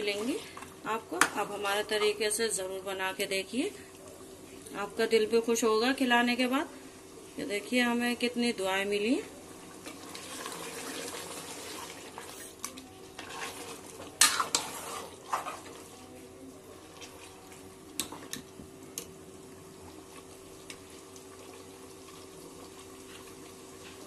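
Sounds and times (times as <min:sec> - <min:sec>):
ladle scraping pot: 0:13.2 - 0:15.8
frying sizzle: 0:19.7 - 0:24.0.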